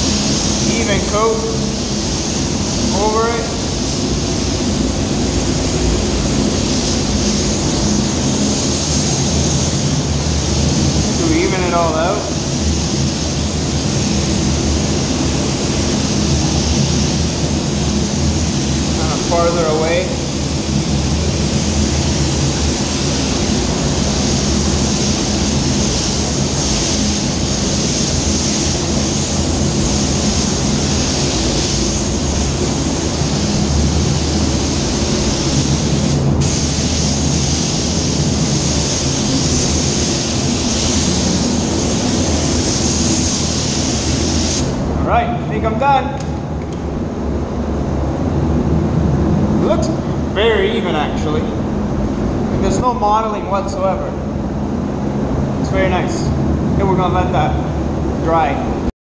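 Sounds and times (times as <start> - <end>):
paint spray gun hissing: 0.0 - 44.8.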